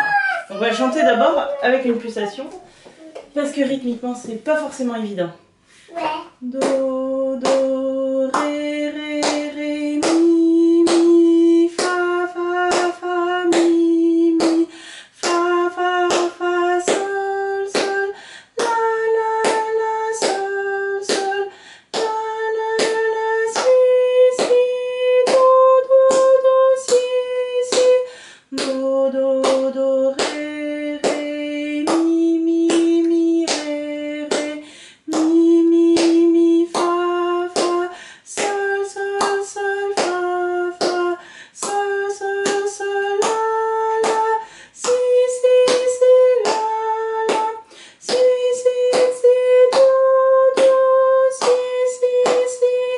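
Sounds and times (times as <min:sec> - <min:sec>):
woman singing a scale: 0:06.4 - 0:52.9
hands clapping a beat: 0:37.6 - 0:38.6, 0:39.2 - 0:40.2, 0:40.8 - 0:50.8, 0:51.4 - 0:52.7.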